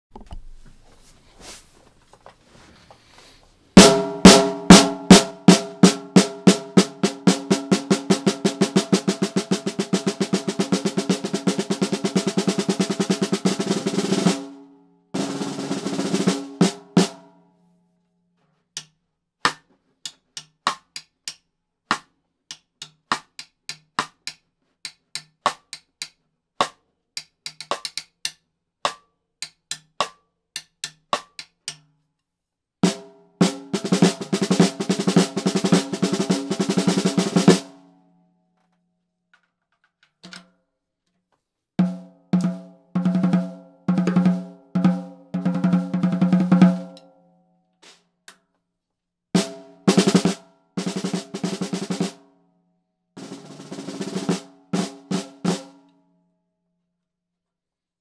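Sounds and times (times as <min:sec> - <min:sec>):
snare drum played with sticks: 0:03.8 - 0:14.6, 0:15.2 - 0:17.2, 0:32.8 - 0:37.8, 0:41.8 - 0:47.0, 0:49.4 - 0:52.2, 0:53.2 - 0:55.8.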